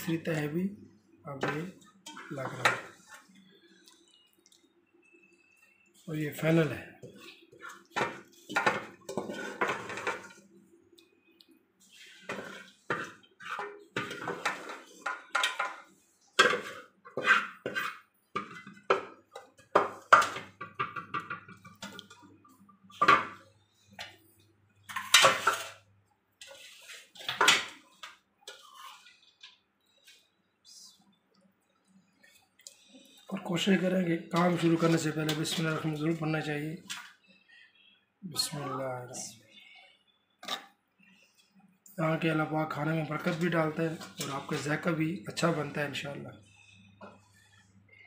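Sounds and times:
metal pots clattering: 1.3s - 3.3s, 7.0s - 10.4s, 11.9s - 24.2s, 24.8s - 25.8s, 26.4s - 29.6s, 33.3s - 37.2s, 42.2s - 47.4s.

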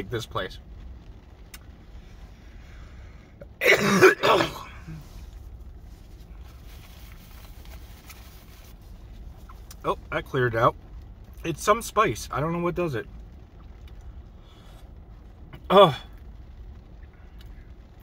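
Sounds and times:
man coughing: 3.6s - 5.1s.

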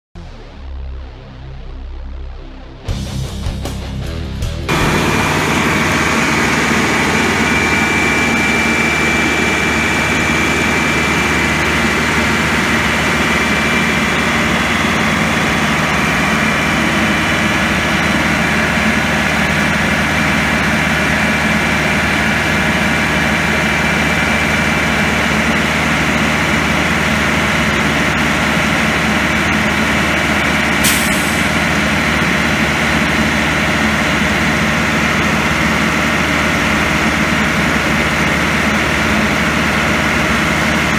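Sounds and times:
diesel truck engine running: 3.0s - 40.9s
thin steady whine: 4.7s - 35.9s.

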